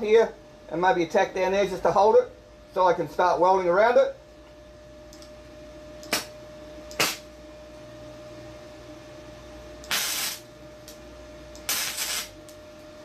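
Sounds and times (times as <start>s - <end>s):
faint steady hum: 0.0s - 13.0s
welding arc crackle: 6.0s - 6.3s, 7.0s - 7.3s, 9.9s - 11.0s, 11.6s - 12.6s
welding arc pops: 6.0s - 7.3s, 9.8s - 11.0s, 11.6s - 12.6s.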